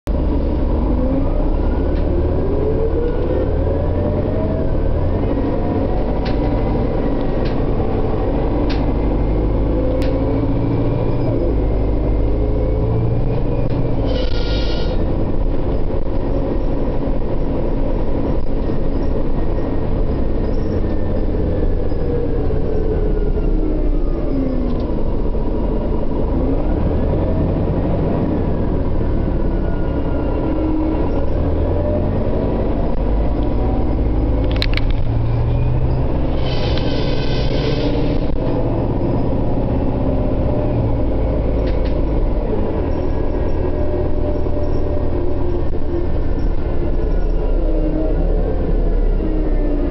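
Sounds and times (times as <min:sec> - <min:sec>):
bus engine rumble: 0:00.1 - 0:49.9
drivetrain whine: 0:00.1 - 0:49.9
high-pitched squeal: 0:12.4 - 0:15.1, 0:35.2 - 0:39.5.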